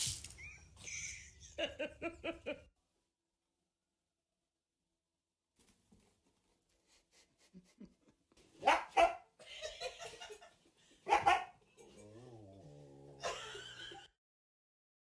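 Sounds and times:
dog barking: 8.6s - 9.4s, 11.0s - 11.6s.

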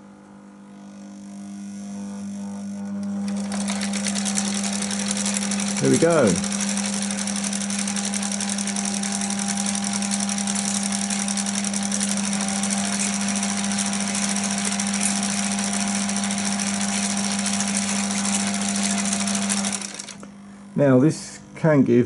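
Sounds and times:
low motor buzz: 0.0s - 22.0s
projector mechanical chatter: 3.0s - 22.0s.

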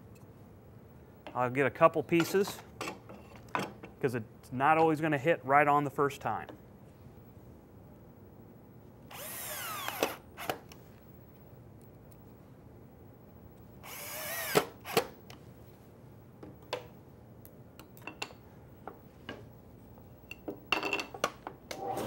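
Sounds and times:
cordless drill motor: 9.1s - 10.2s, 13.8s - 15.0s.

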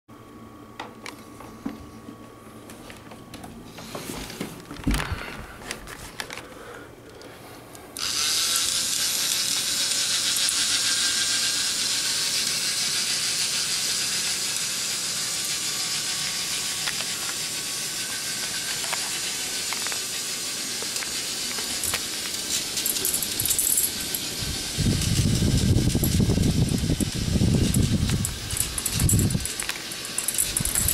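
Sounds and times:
toy motor whirring: 8.0s - 30.9s.

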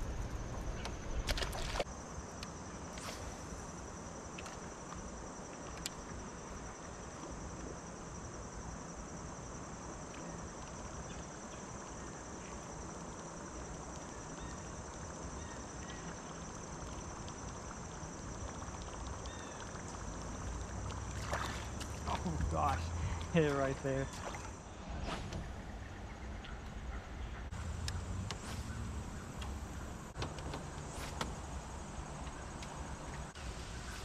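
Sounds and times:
insect chirring: 0.0s - 24.8s.

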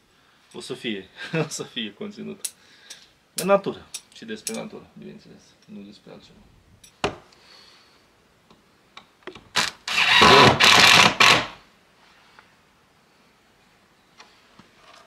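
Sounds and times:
impact driver driving screw: 9.6s - 11.6s.

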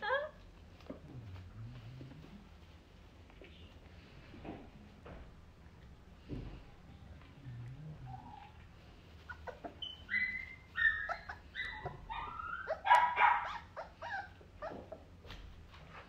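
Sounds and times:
puppy crying: 9.2s - 15.1s.

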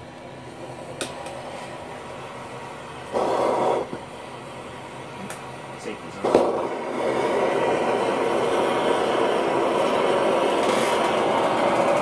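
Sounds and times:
torch flames rushing: 0.0s - 12.0s
torch ignition pop: 1.0s - 1.4s, 3.1s - 4.1s, 6.2s - 7.1s.

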